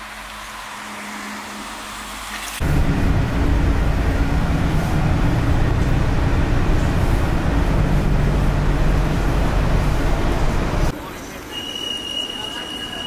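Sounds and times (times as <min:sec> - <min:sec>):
bus engine drone: 0:00.0 - 0:11.3
road noise: 0:00.0 - 0:13.0.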